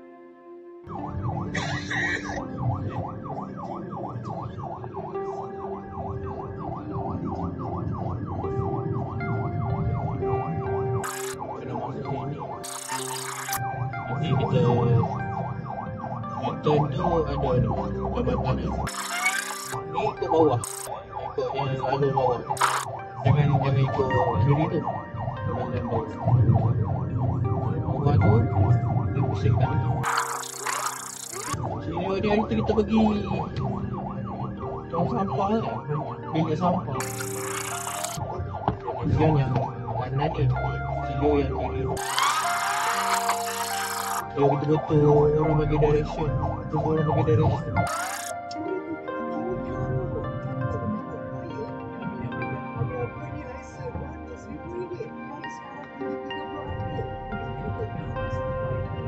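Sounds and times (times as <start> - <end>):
engine and road rumble: 0.8 - 48.7
electronic siren yelping: 0.9 - 44.4, 47.5 - 48.4.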